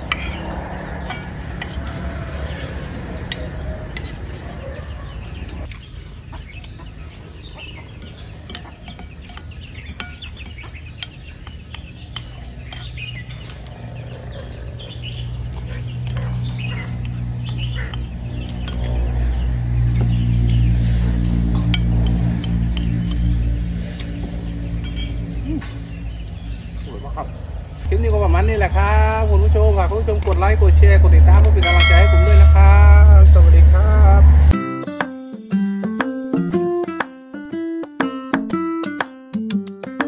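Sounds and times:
bird calls: 0.0s - 27.9s
spoon clinking on ceramic plates: 8.0s - 13.8s
steady low tones: 17.0s - 35.0s.

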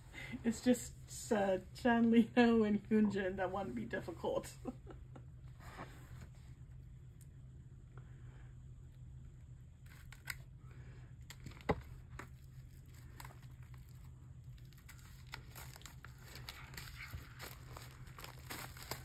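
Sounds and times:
packaging crinkling and tearing: 9.8s - 10.6s, 11.2s - 19.0s.

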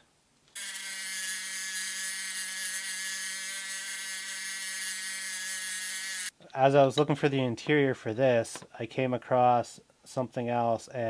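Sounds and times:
rotary tool grinding metal: 0.6s - 6.3s.

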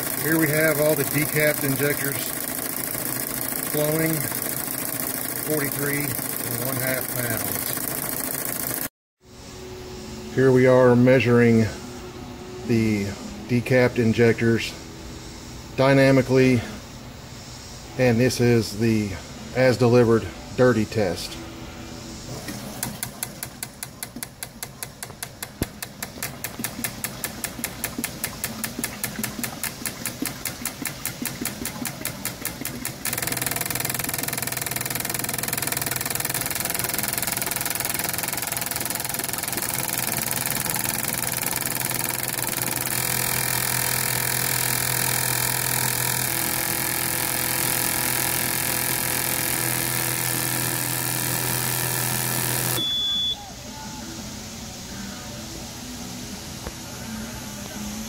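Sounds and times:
fuel injectors clicking and hissing: 0.0s - 8.9s, 22.4s - 52.8s.

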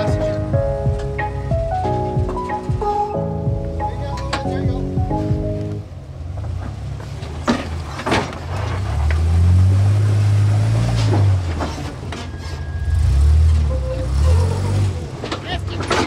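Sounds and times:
vehicle engine pulling at low speed: 3.3s - 16.0s.

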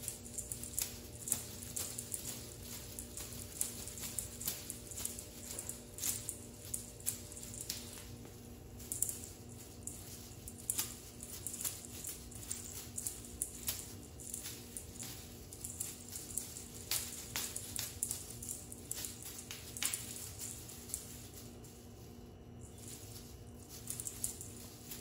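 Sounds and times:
tinsel cat toy crinkling on tile: 0.0s - 25.0s.

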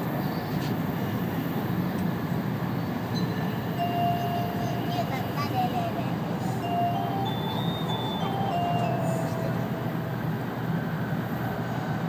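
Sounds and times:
train running noise: 0.0s - 12.0s
electronic chime melody: 3.8s - 5.8s, 6.6s - 10.6s.

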